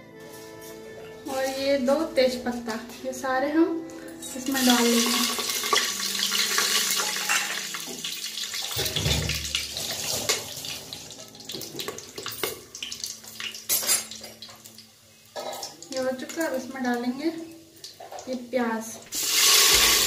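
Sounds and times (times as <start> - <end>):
spices sizzling in hot oil: 4.4 - 20.0.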